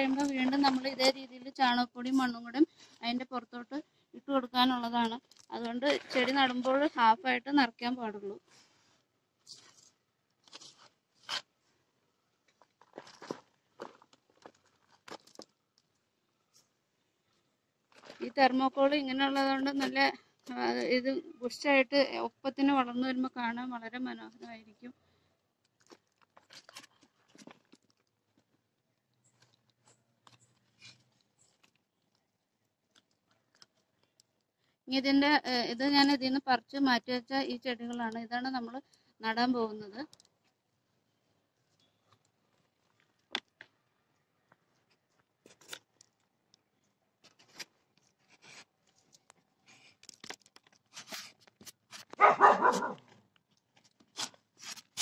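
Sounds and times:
dog barking: 52.2 - 53.0.

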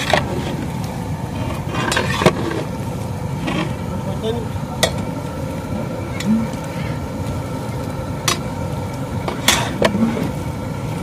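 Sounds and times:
metal paddle stirring in pot: 0.0 - 3.9, 9.2 - 10.4
steady low rumble: 0.0 - 11.0.

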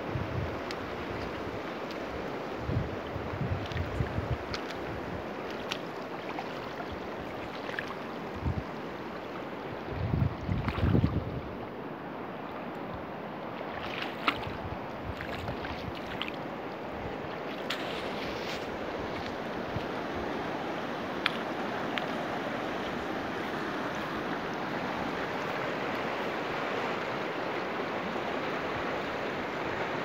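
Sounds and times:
wind buffeting microphone: 0.0 - 5.4, 8.2 - 8.8, 9.7 - 11.6
river flowing over stones: 0.0 - 30.0.

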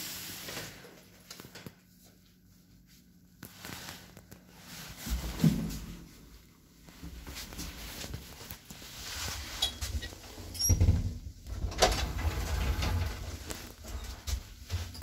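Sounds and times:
elevator low hum: 9.1 - 15.0
elevator doors closing with clunks: 10.5 - 14.9.

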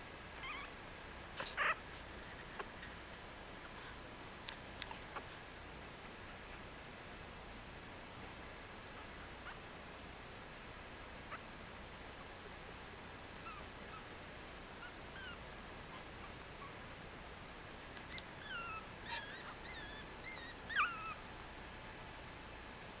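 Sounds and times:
puppies squeaking and whimpering: 0.4 - 0.7, 1.4 - 1.8, 14.8 - 16.8, 18.1 - 21.2.

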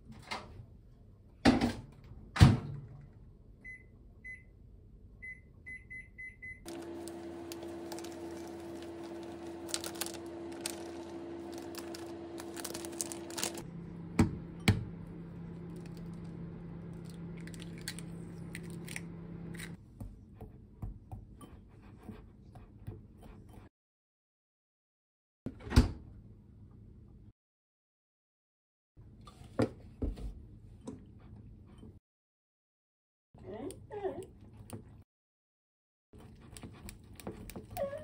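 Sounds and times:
microwave oven humming: 6.6 - 19.8.

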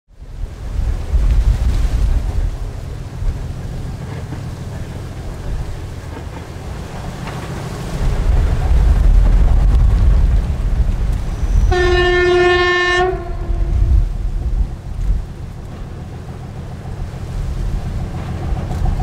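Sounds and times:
diesel locomotive rumble: 0.2 - 19.0
locomotive horn blast: 11.5 - 14.1.

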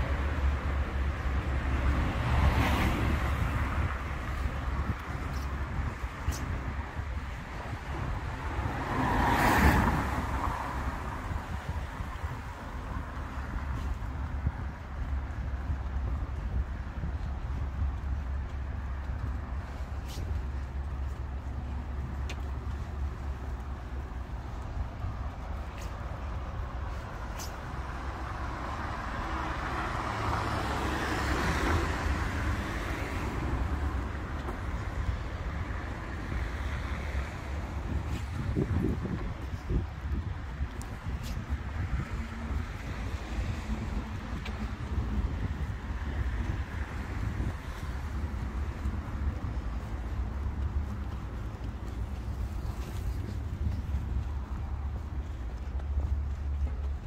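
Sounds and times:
low traffic rumble: 0.0 - 57.0
road vehicle passing: 0.0 - 57.0
wind buffeting microphone: 0.0 - 57.0
car passing close by: 7.9 - 12.2.

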